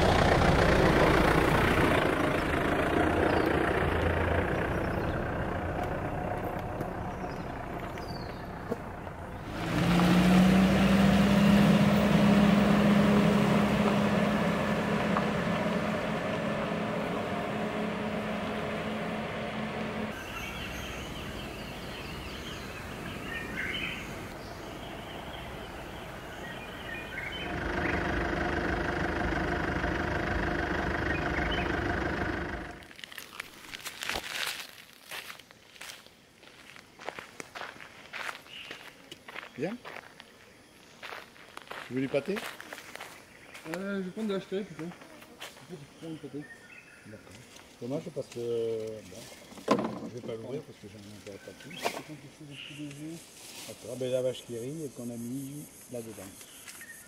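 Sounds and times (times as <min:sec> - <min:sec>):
vehicle engine running: 0:00.0 - 0:32.9
tyres on gravel and dirt: 0:00.0 - 0:56.9.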